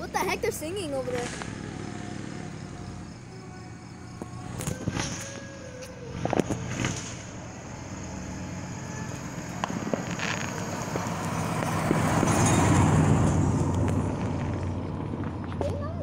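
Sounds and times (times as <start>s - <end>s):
car driving past: 1.0s - 15.5s.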